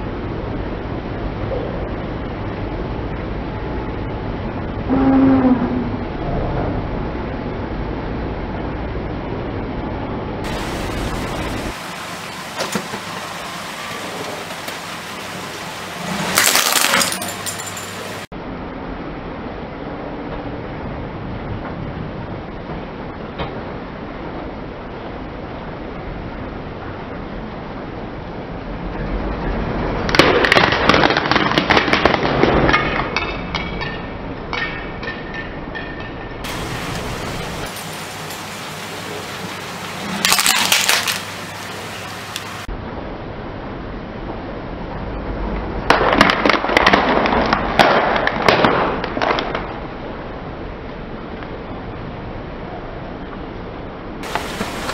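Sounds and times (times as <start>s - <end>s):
low car rumble: 0.0s - 12.0s
plastic shells cracking under tyre: 30.1s - 33.2s, 40.3s - 41.3s, 45.9s - 49.8s
thin hiss: 36.5s - 42.7s, 54.2s - 54.9s
crackling rattle: 40.2s - 42.7s.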